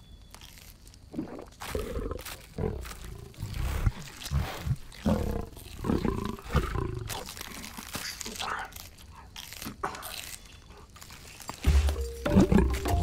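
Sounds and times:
wet ripping and chewing: 0.3s - 13.0s
growls and grunts: 1.7s - 7.5s.

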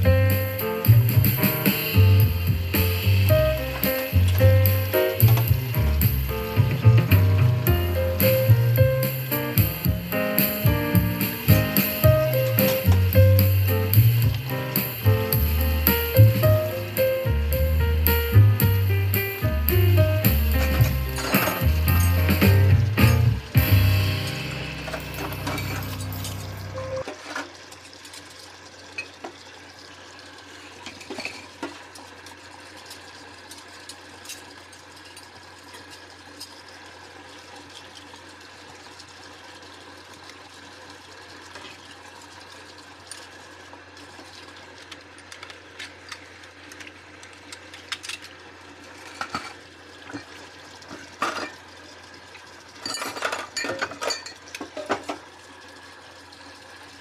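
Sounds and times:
water running into sink: 0.0s - 57.0s
dishes and cutlery clinking: 24.9s - 26.5s, 52.8s - 55.0s.

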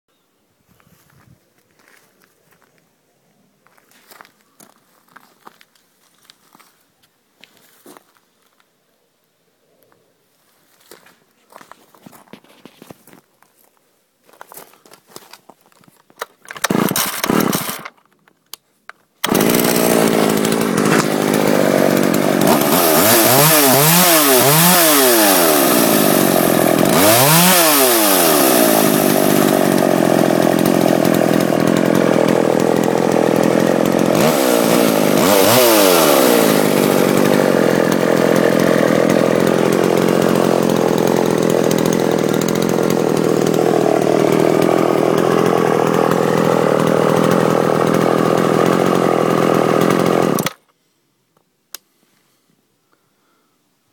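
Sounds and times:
chainsaw idling and revving: 16.6s - 17.9s, 19.2s - 50.6s.

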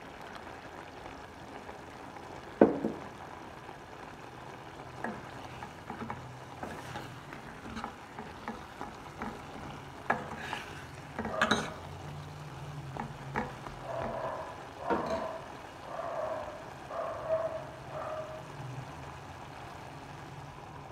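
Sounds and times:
metal spoon scraping pan: 5.0s - 15.5s.

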